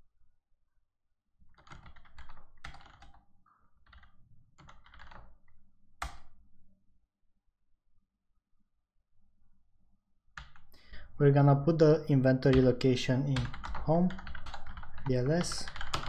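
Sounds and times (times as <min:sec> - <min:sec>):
keyboard typing: 0:01.5 - 0:03.2, 0:03.8 - 0:05.4, 0:10.4 - 0:10.8, 0:12.3 - 0:16.0.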